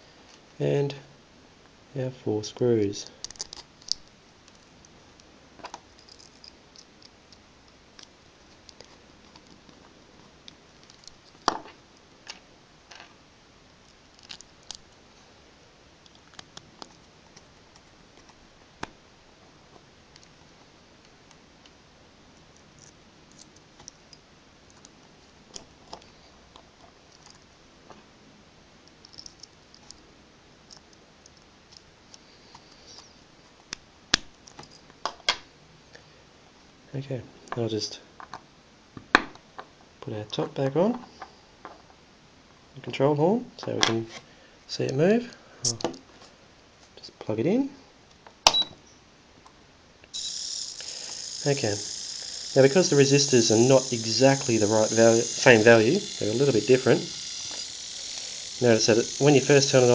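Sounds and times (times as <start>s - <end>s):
small servo handled in fingers: 50.1s - 59.9s.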